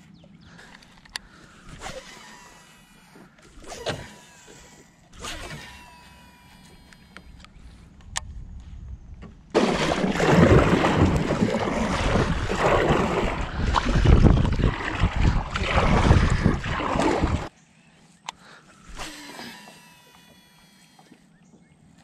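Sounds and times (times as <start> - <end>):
faint clicks: 0.6 - 1.4
paddle strokes in water: 9.6 - 17.5
wind buffeting microphone: 10.2 - 17.5.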